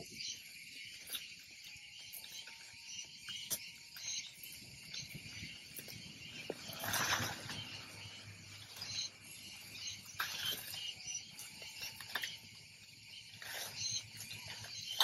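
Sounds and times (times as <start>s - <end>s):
insects chorus: 0.0s - 15.0s.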